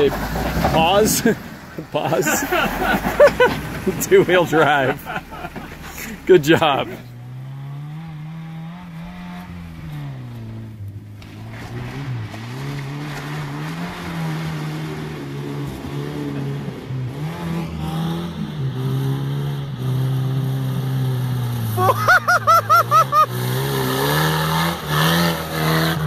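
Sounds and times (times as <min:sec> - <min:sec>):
suv engine revving hard: 0:00.0 - 0:26.0
wheels churning through mud: 0:00.0 - 0:26.0.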